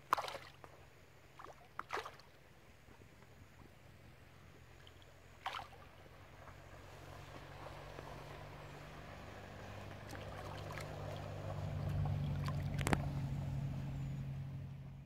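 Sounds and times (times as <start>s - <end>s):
fish splashing in river: 0.0s - 2.4s, 4.6s - 13.3s.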